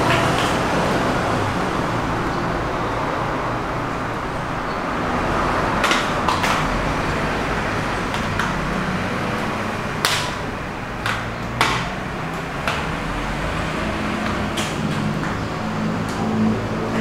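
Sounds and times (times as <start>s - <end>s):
handling clicks and knocks: 5.7s - 16.4s.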